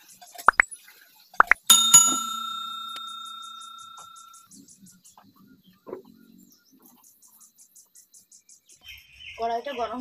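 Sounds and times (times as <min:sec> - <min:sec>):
bell chime: 0:01.6 - 0:04.4.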